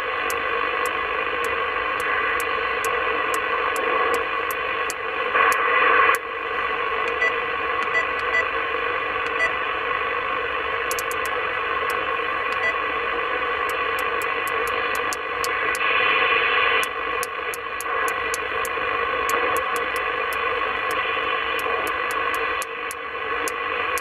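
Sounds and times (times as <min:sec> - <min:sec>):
light tuning clicks: 0:07.0 - 0:08.4, 0:10.9 - 0:12.8, 0:13.6 - 0:15.8, 0:16.8 - 0:21.0, 0:21.6 - 0:24.0
radio band noise rush: 0:10.8 - 0:24.0.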